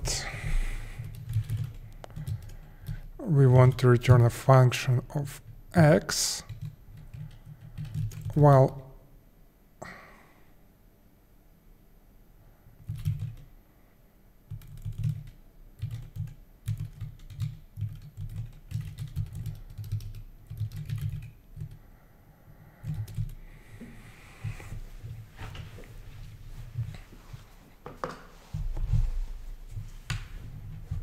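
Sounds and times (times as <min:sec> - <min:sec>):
typing on computer keyboard: 0:01.0 - 0:03.8, 0:06.4 - 0:08.4, 0:12.8 - 0:13.5, 0:14.5 - 0:21.8, 0:22.8 - 0:23.4.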